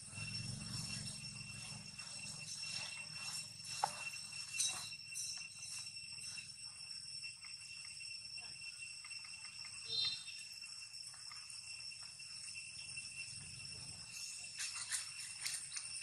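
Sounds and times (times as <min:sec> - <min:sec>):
insect chirp: 0:00.0 - 0:16.0
insects chorus: 0:00.0 - 0:16.0.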